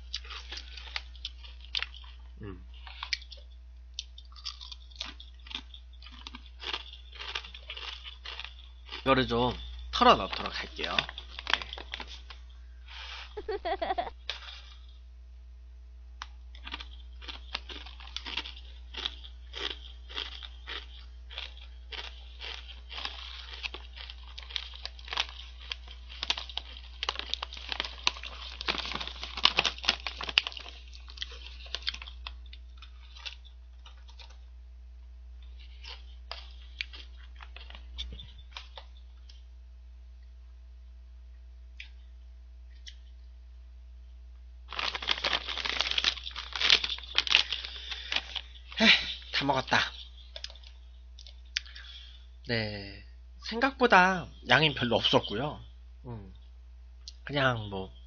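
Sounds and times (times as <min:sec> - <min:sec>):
chips crunching: 0:00.0 - 0:14.9, 0:16.2 - 0:34.5, 0:35.4 - 0:39.4, 0:44.7 - 0:52.0
snack bag crinkling: 0:00.0 - 0:14.9, 0:16.2 - 0:34.5, 0:35.4 - 0:39.5, 0:44.7 - 0:52.1.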